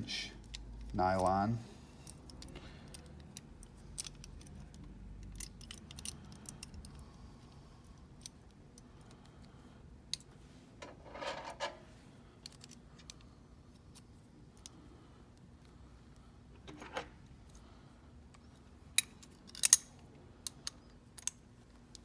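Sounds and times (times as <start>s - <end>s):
metal hardware clicks and taps: 19.0s - 22.0s.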